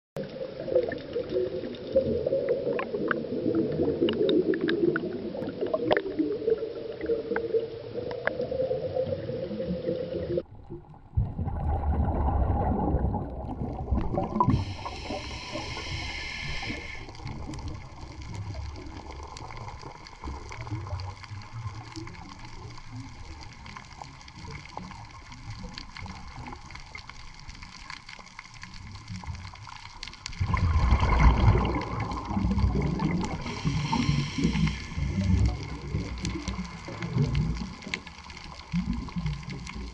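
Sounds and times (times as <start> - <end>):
underwater water wash and gurgling: 0.2 - 39.9
low rumble: 30.6 - 37.8.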